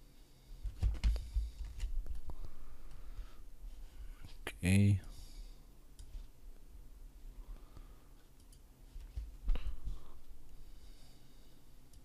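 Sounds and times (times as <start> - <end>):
faint room noise: 0.0 - 12.0
computer mouse clicks: 8.4 - 8.6.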